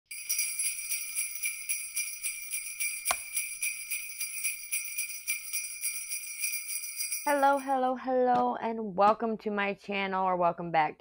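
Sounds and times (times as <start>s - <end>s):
sleigh bells jingling: 0.1s - 7.8s.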